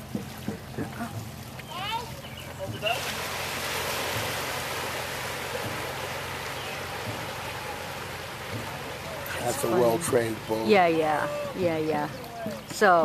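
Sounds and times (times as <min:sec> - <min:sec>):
paddles splashing water: 0:00.0 - 0:13.0
faint low thuds: 0:05.3 - 0:10.9.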